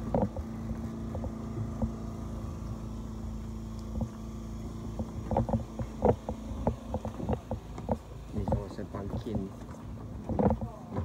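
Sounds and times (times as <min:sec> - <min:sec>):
engine humming: 0:00.0 - 0:11.0
footsteps on wooden deck: 0:04.9 - 0:11.0.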